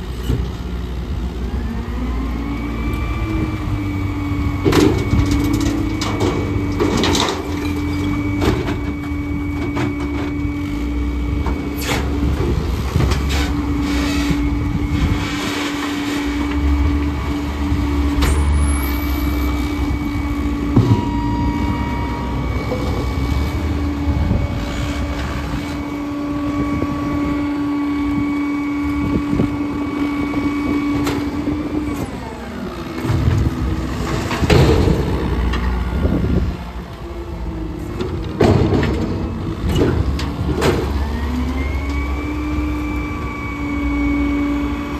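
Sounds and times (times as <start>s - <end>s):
garbage truck engine rumble: 0.0s - 44.9s
hydraulic hum: 0.1s - 44.9s
debris clunking into hopper: 4.4s - 26.0s, 32.7s - 36.5s, 37.7s - 42.8s.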